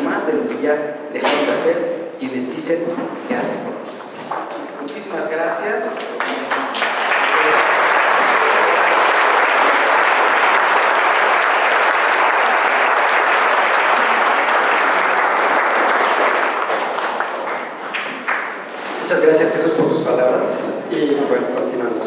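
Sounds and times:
audience applauding: 6.0 - 18.8.

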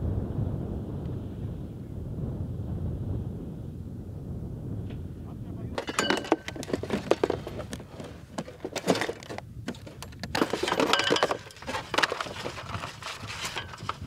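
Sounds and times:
metal parts clattering: 5.8 - 7.6, 8.4 - 14.0
clicks and knocks with metallic ring: 5.8 - 12.7, 13.3 - 14.0.

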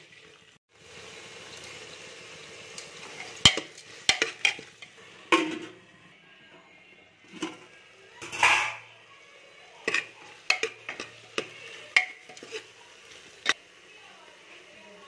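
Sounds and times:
metal ladle knocking pot: 9.8 - 12.6.

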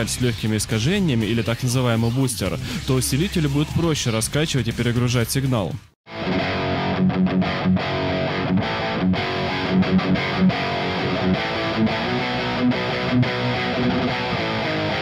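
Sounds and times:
distorted electric guitar riff: 6.1 - 15.0.

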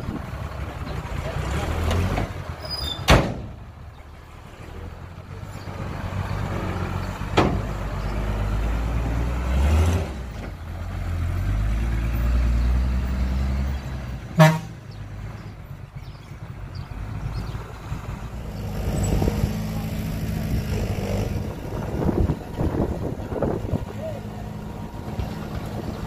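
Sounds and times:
diesel engine rumbling: 0.0 - 26.0
sharp knocks: 7.3 - 7.7.

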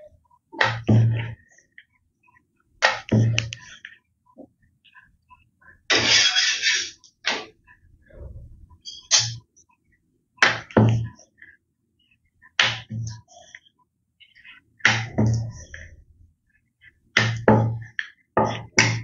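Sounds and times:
rolling pin rolling dough on metal board: 14.5 - 16.1, 17.1 - 19.0.

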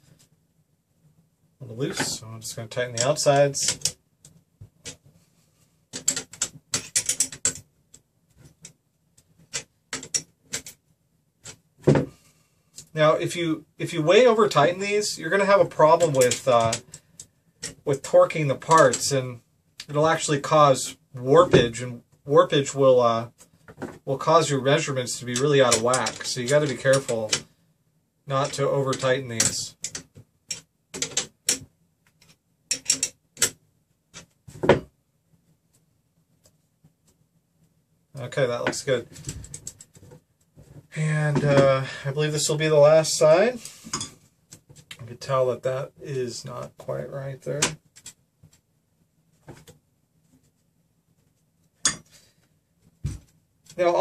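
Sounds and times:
wrench clicking on metal nuts: 32.7 - 33.6.

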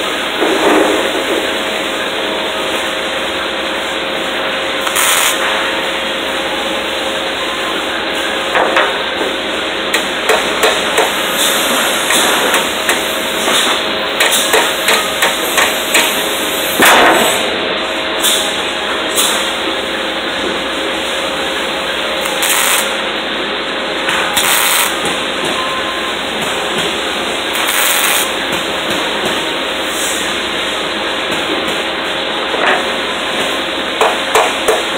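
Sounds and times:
steady background hum: 0.0 - 34.9.

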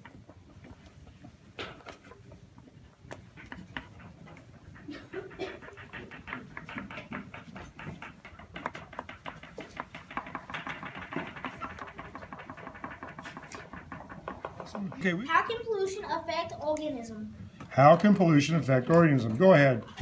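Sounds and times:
pencils scratching on paper: 3.2 - 15.2.

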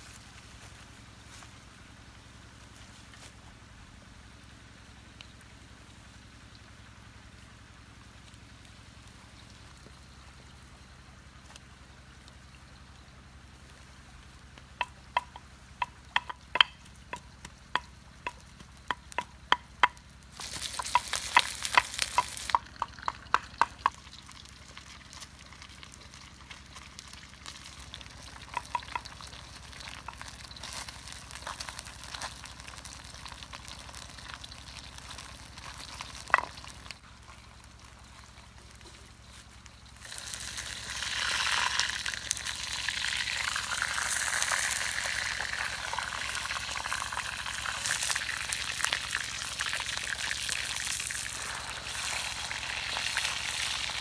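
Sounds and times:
wooden pestle pounding in mortar: 14.8 - 20.0, 20.7 - 24.0
scraping and tapping at mortar: 14.8 - 24.0, 28.5 - 29.3
fish sizzling in a wok: 20.2 - 36.9, 39.9 - 54.0
loud hiss: 51.3 - 54.0.

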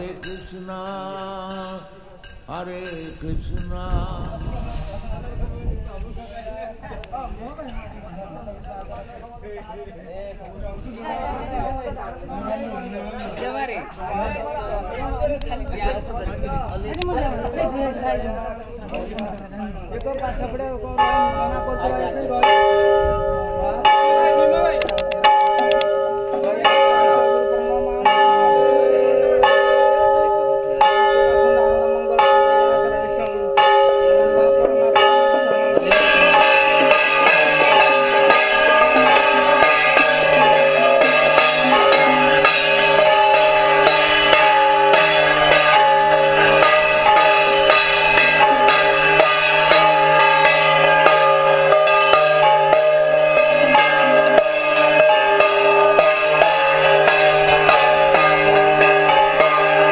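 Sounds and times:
brass gongs ringing: 33.4 - 59.9.

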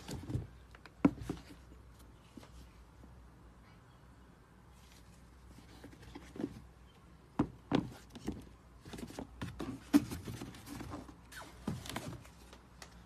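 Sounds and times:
sneakers knocking on cardboard box: 7.4 - 10.6.

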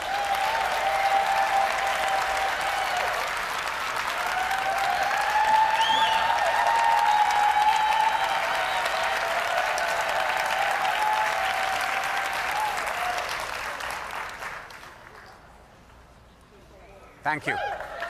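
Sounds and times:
audience applauding and cheering: 0.0 - 15.3
high whistle from crowd: 5.7 - 6.3.

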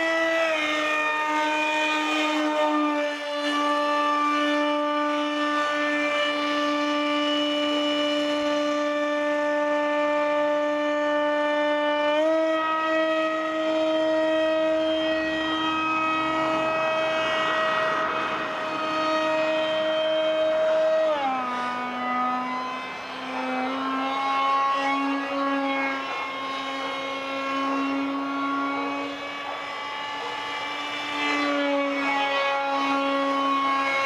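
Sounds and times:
electric motor and propeller whining: 0.0 - 34.0.

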